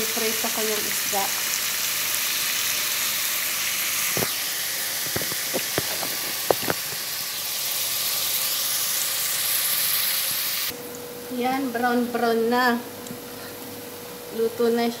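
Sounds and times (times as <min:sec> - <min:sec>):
oil sizzling in a pan: 0:00.0 - 0:10.7.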